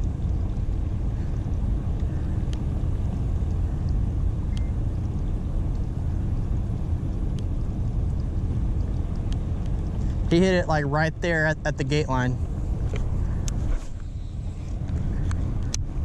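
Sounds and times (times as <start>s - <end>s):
faint ticks: 0.0s - 6.0s, 6.6s - 10.3s
steady low rumble: 0.0s - 16.0s.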